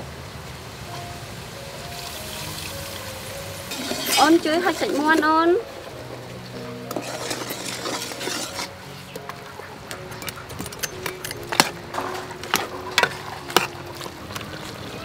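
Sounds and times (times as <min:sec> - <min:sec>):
metal ladle clinking against pot: 0:03.7 - 0:05.1, 0:06.9 - 0:09.4, 0:10.0 - 0:14.7.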